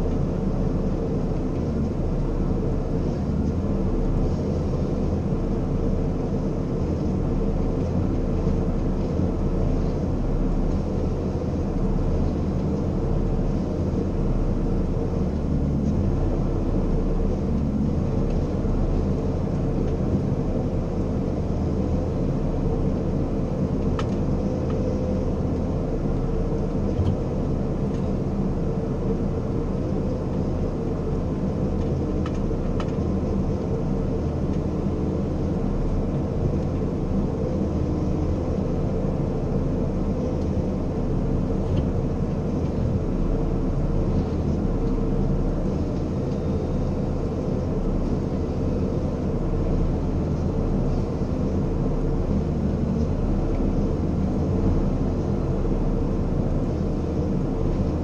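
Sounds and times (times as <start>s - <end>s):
diesel engine and hydraulics droning: 0.0s - 58.0s.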